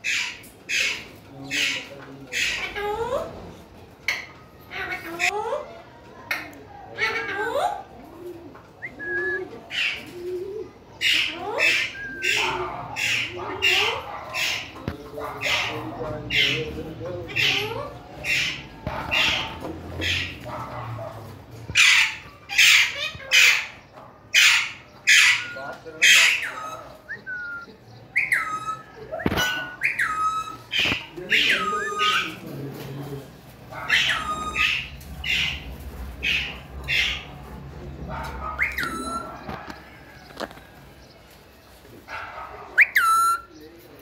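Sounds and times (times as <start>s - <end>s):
parakeet squawking: 0.0s - 2.9s, 11.0s - 20.8s, 21.7s - 32.5s, 33.7s - 37.4s, 38.1s - 39.4s, 42.8s - 43.5s
parakeet whistled call: 28.2s - 32.2s, 42.8s - 43.5s.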